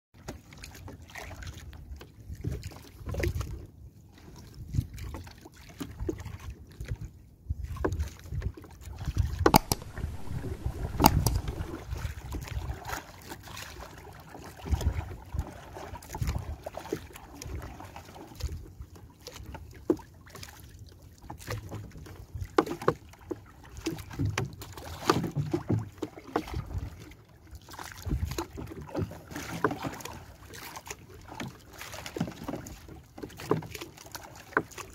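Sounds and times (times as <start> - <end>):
water splashing along hull: 0.2 - 34.9
paddle knocking against boat: 9.5 - 11.8, 24.0 - 26.8.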